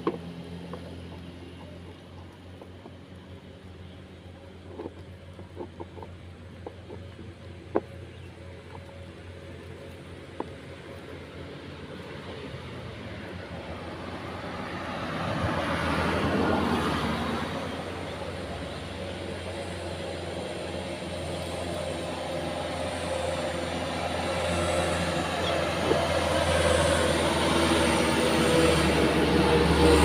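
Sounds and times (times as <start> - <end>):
truck engine drone: 0.0 - 30.0
vehicle passing: 11.5 - 30.0.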